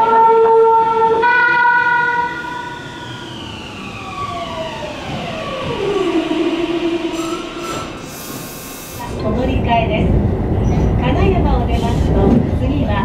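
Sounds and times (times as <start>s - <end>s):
train music horn: 0.0s - 2.8s, 6.4s - 8.3s.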